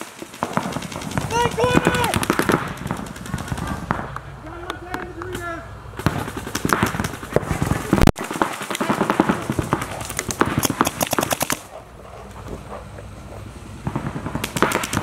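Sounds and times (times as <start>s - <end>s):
paintball markers firing: 6.0s - 11.7s, 13.9s - 15.0s.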